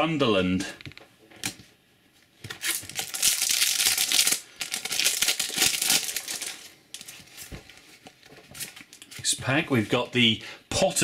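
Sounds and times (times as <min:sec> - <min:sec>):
wrapper crinkling and tearing: 0:02.4 - 0:08.0.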